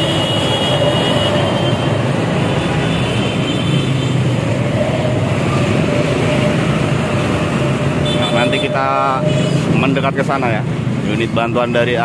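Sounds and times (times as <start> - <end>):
truck passing: 0.0 - 11.4
buses passing: 0.0 - 12.0
motorcycles passing: 0.0 - 12.0.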